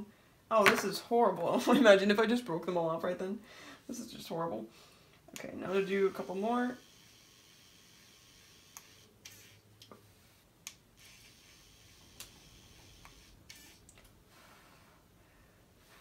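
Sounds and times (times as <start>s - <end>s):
soft puffs of breath: 3.4s - 3.9s, 14.2s - 16.0s.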